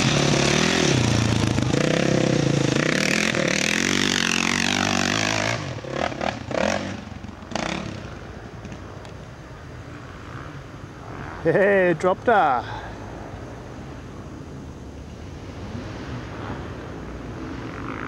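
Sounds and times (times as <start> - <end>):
dirt bike engine revving: 0.0 - 8.8.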